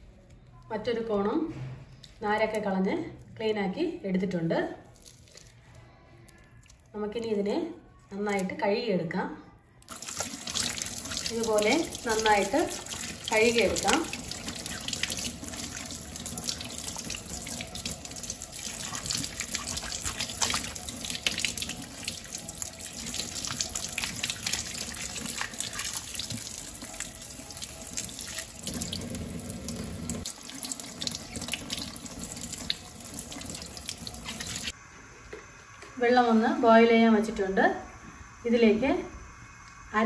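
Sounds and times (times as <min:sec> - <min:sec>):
tap water splashing: 0:09.9 - 0:27.0.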